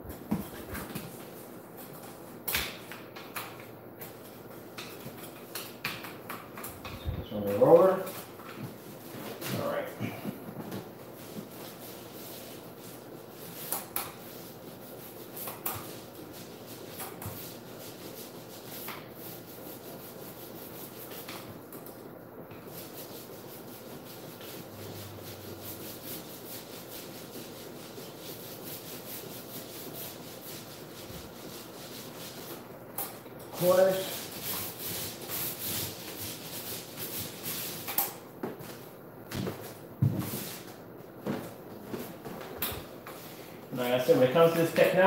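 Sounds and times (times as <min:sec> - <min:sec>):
paint roller rubbing on wall: 0:06.9 - 0:21.7, 0:22.5 - 0:42.3, 0:42.9 - 0:45.0.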